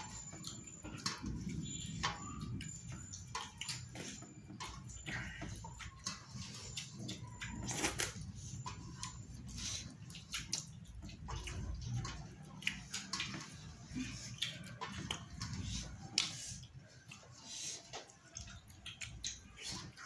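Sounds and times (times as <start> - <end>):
fingers being licked: 8.6 - 20.0.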